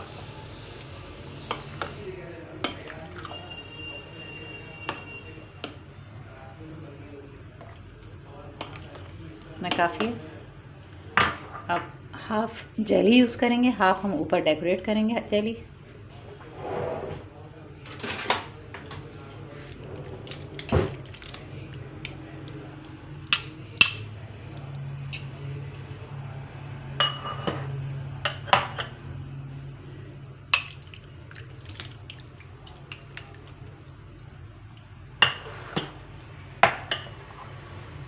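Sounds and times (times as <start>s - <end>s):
spoon clinking on ceramic bowls: 2.6s - 3.4s, 23.3s - 24.1s, 25.1s - 25.9s, 27.0s - 27.6s.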